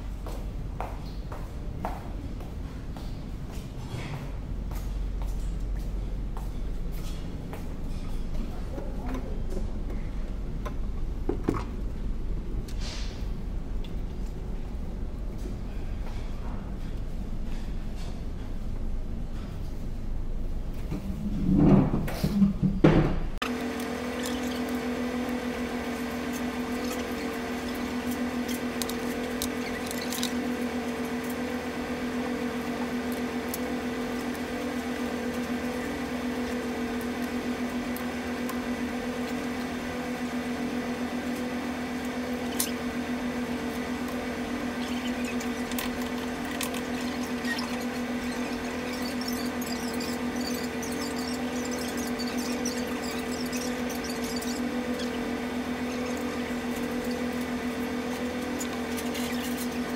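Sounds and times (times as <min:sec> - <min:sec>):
ship engine drone: 0:23.5 - 0:59.9.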